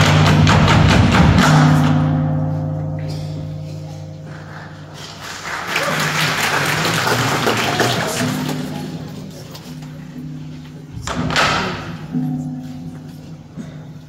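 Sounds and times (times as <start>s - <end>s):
audience applause: 4.3s - 9.4s.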